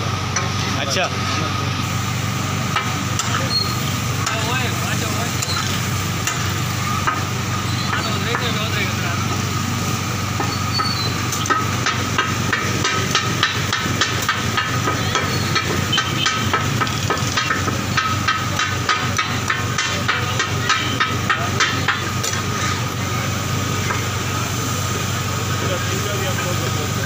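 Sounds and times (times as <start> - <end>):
meat sizzling in oil: 1.9 - 19.9.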